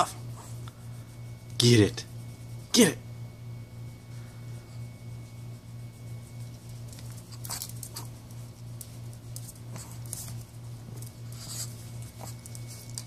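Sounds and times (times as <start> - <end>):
steady low hum: 0.0 - 13.0
puppy claws scrabbling on concrete: 6.6 - 13.0.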